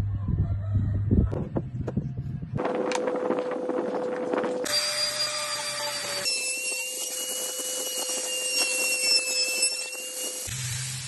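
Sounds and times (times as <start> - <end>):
wood router whining: 2.6 - 11.0.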